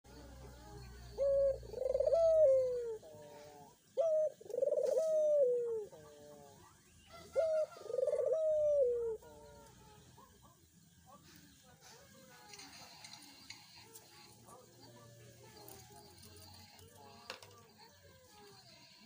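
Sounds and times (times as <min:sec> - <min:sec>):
dove cooing: 0:00.1 - 0:10.6.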